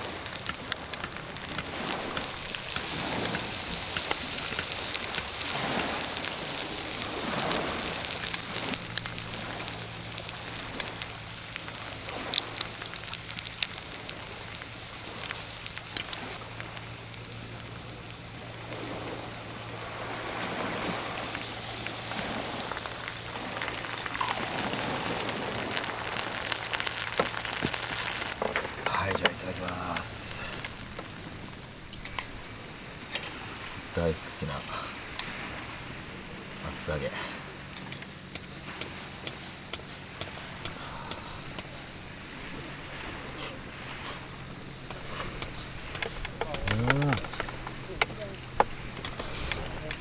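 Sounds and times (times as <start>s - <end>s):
tofu sizzling in frying pan: 0.0s - 28.4s.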